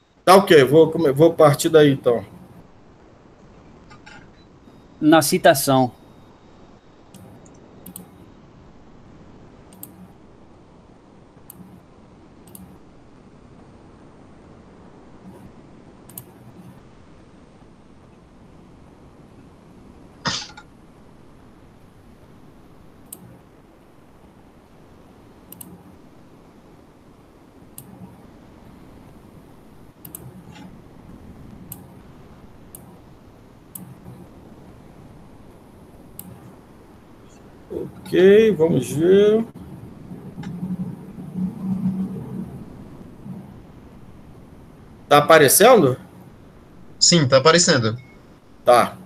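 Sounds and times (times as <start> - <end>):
steady low hiss: 0.0 - 49.0
faint computer clicks: 7.1 - 8.3, 9.7 - 10.2, 11.4 - 11.8, 12.4 - 12.8, 16.1 - 16.8, 23.0 - 23.4, 25.5 - 25.9, 27.7 - 28.2, 30.0 - 30.8, 33.7 - 34.4, 36.0 - 36.6.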